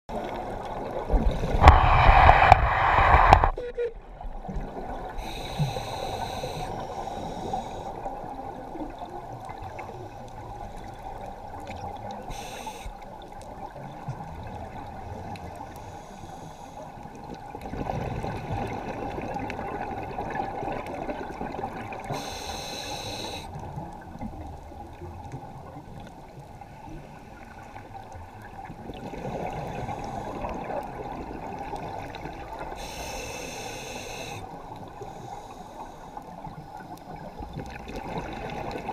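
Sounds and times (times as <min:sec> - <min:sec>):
underwater bubbling: 0:00.1 - 0:38.9
underwater rush: 0:00.1 - 0:38.9
regulator hiss: 0:05.2 - 0:08.0, 0:12.3 - 0:13.0, 0:22.1 - 0:23.5, 0:32.8 - 0:36.2.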